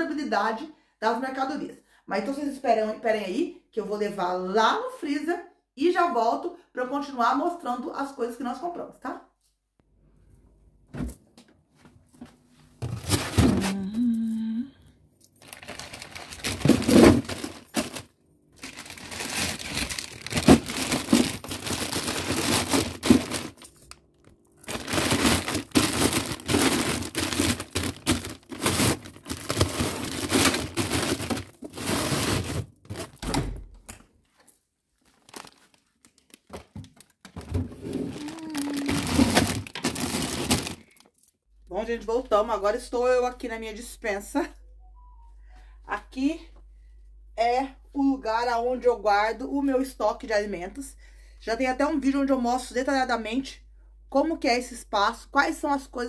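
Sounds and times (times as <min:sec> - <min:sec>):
plastic bags rustling and crinkling: 0:15.4 - 0:24.0, 0:24.6 - 0:33.2, 0:34.4 - 0:41.3.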